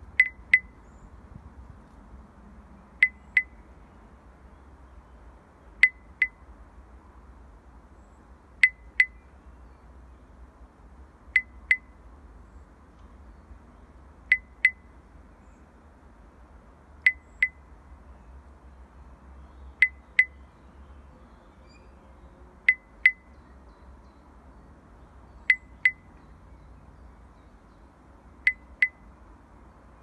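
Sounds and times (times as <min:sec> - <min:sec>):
electronic heartbeat ticks: 0:03.0 - 0:03.6, 0:14.3 - 0:14.8, 0:25.5 - 0:26.0.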